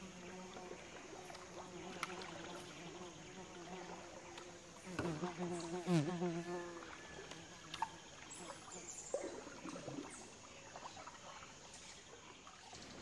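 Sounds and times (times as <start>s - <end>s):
small water splashes: 0.0s - 5.1s, 6.8s - 13.0s
insect buzzing: 0.0s - 10.5s.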